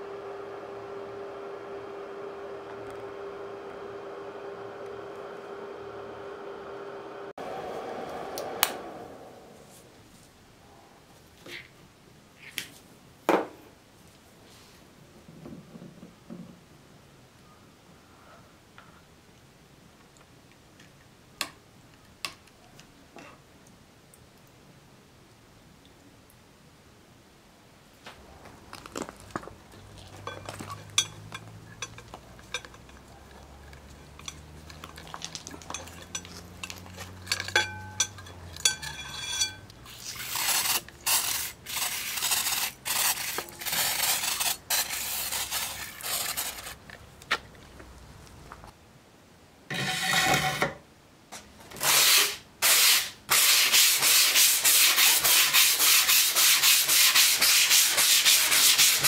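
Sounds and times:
sandpaper rubbing on metal: 39.1s - 46.8s, 51.8s - 59.0s.

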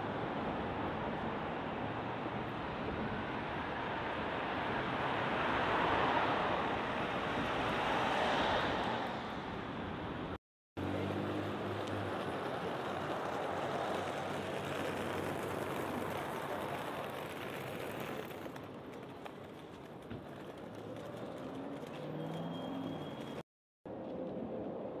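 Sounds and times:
engine hum: 10.8s - 19.4s.

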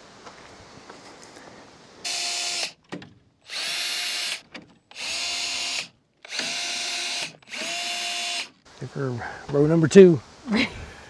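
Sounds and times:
cordless drill spinning: 2.0s - 2.8s, 3.5s - 8.6s.

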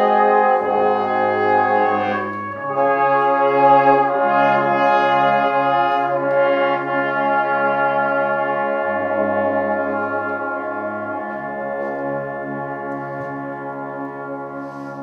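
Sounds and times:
brass band sustained chords: 0.0s - 15.0s.

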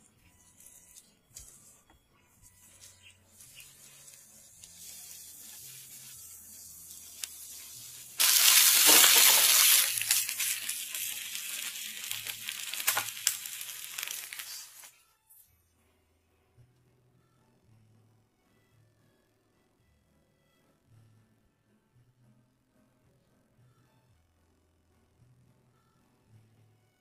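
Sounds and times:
eggs cooking in frying pan: 3.4s - 14.9s
bacon sizzling in a pan: 4.6s - 14.9s.

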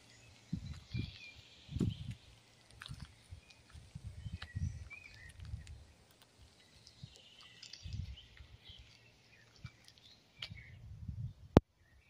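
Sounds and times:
songbirds chirping: 0.0s - 12.0s
low rumbling bumps on microphone: 1.7s - 2.2s.

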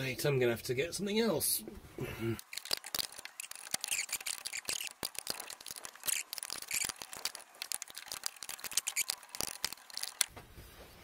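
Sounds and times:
hands handling tools rustling: 2.4s - 10.3s
sharp clicks: 2.4s - 10.3s.

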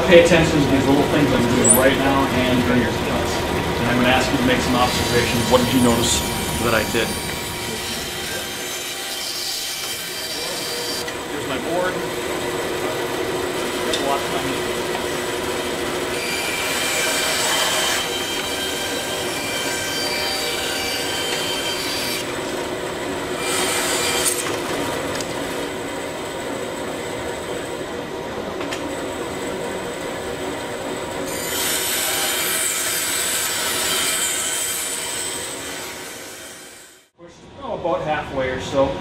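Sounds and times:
band saw running hum: 0.0s - 37.1s.

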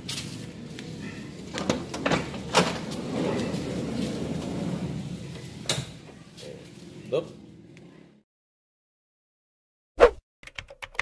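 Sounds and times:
sliding door motor running: 0.4s - 5.8s.

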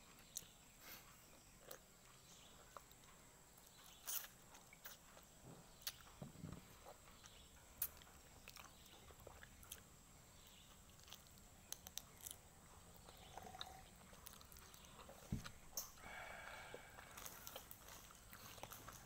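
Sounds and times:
person chewing: 0.2s - 19.0s.

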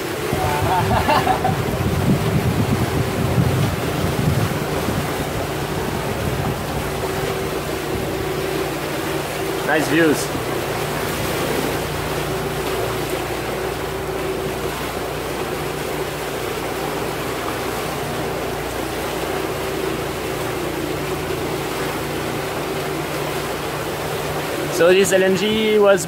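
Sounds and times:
electric outboard motor whine: 0.0s - 26.0s
water splashing along boat hull: 0.0s - 26.0s.

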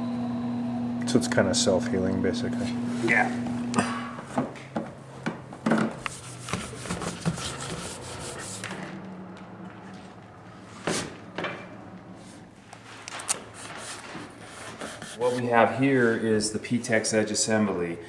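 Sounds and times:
low hum of shop equipment: 0.0s - 18.0s
materials scraping on a bench: 5.8s - 9.0s, 12.1s - 15.7s.

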